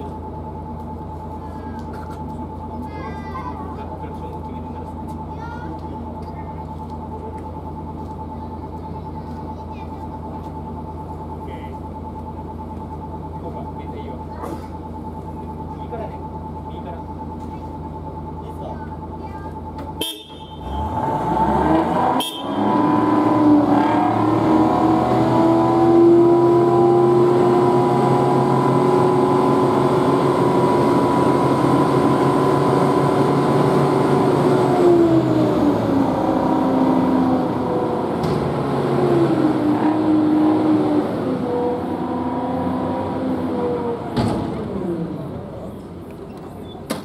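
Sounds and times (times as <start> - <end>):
engine and hydraulics whining: 0.0 - 47.0
sharp clunk: 44.1 - 44.7.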